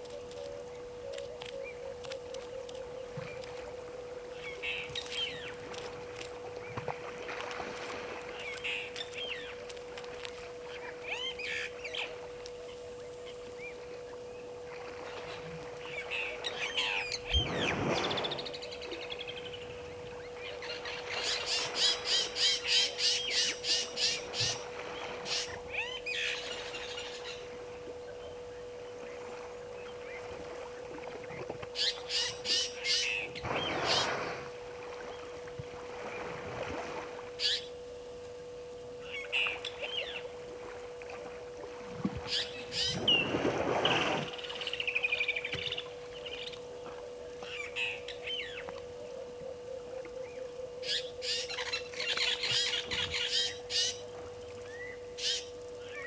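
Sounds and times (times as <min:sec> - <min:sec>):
faint steady hum: 0:00.0 - 0:56.0
birds chirping and squawking: 0:42.3 - 0:43.0, 0:50.8 - 0:54.0.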